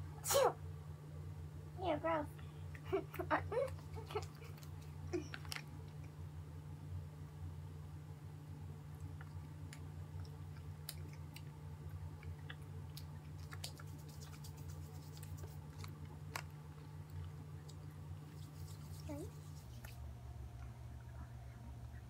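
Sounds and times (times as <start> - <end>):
low hum: 0.0 - 22.0
sticky chewing of gummy candy: 9.0 - 20.0.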